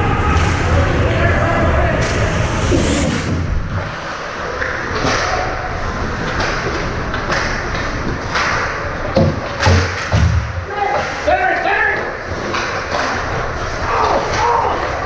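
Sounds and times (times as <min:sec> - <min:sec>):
hockey puck and stick knocks: 0:06.3 - 0:11.2.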